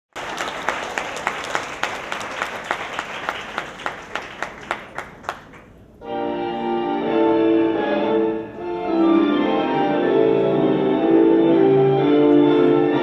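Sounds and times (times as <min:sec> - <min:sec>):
audience applauding: 0:00.1 - 0:05.7
sharp rhythmic claps: 0:00.1 - 0:05.8.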